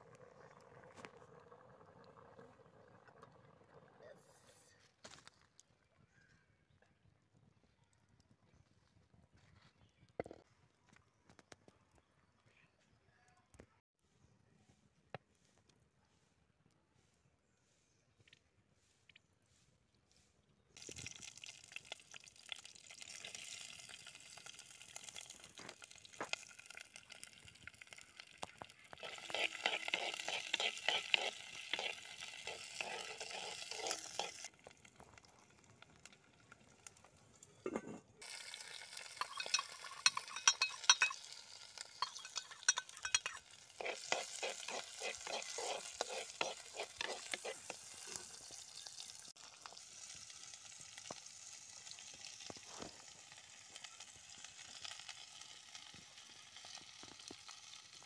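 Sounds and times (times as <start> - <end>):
garlic sizzling in hot oil: 20.8 - 37.2, 38.2 - 58.0
steel ladle scraping a pot: 29.0 - 34.5, 37.5 - 48.6.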